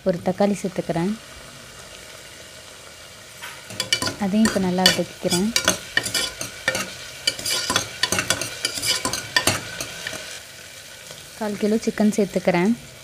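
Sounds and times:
food sizzling in oil: 0:00.0 - 0:13.0
spatula scraping a pot: 0:03.6 - 0:10.4.

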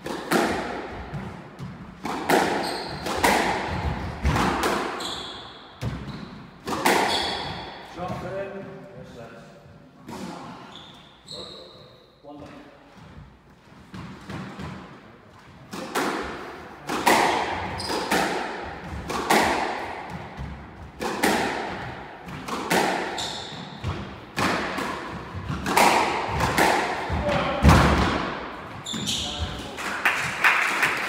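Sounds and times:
squash ball hits: 0:00.0 - 0:05.0, 0:05.8 - 0:07.8, 0:15.7 - 0:29.0
shoe squeaks: 0:02.6 - 0:03.2, 0:04.9 - 0:06.4, 0:07.0 - 0:07.8, 0:10.5 - 0:12.3, 0:17.7 - 0:18.1, 0:23.1 - 0:23.8, 0:28.8 - 0:29.7.

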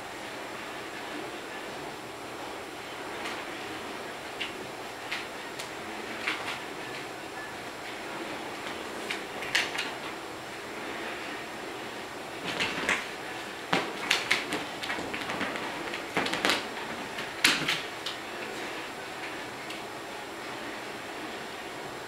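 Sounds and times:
pet scrambling on fabric couch: 0:12.4 - 0:18.0.

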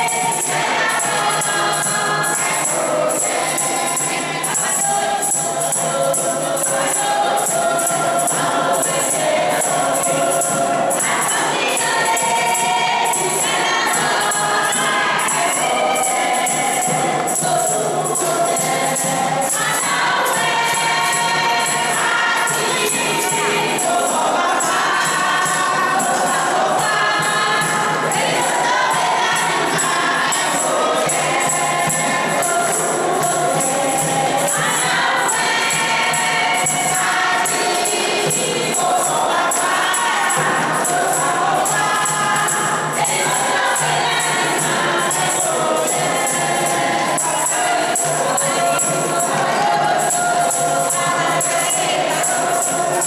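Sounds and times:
choir singing: 0:00.0 - 0:53.0
rhythmic percussion: 0:00.0 - 0:53.0.

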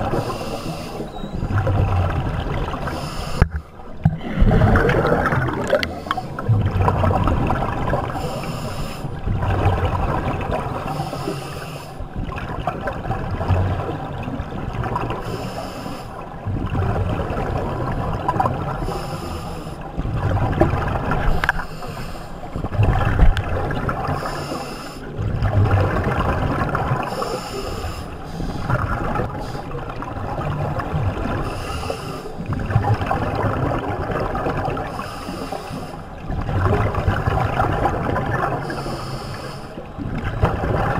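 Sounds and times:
exhaled bubbles rumbling: 0:00.0 - 0:11.2, 0:12.0 - 0:15.4, 0:16.1 - 0:35.0, 0:36.1 - 0:39.2, 0:39.8 - 0:40.9
regulator inhale hiss: 0:00.1 - 0:01.1, 0:02.9 - 0:03.7, 0:08.2 - 0:09.2, 0:10.9 - 0:12.0, 0:15.2 - 0:16.2, 0:18.8 - 0:19.8, 0:21.4 - 0:22.4, 0:24.1 - 0:25.1, 0:27.1 - 0:28.7, 0:31.4 - 0:32.4, 0:34.9 - 0:36.1, 0:38.6 - 0:39.8.

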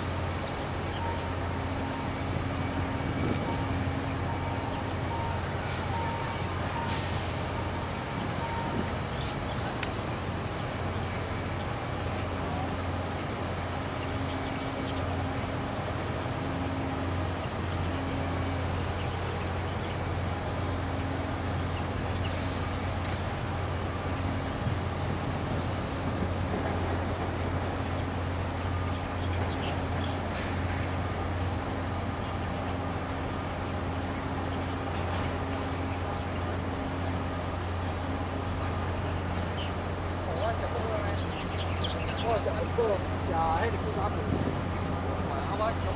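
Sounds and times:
constant rush of noise: 0:00.0 - 0:45.9
ship engine drone: 0:00.0 - 0:45.9.

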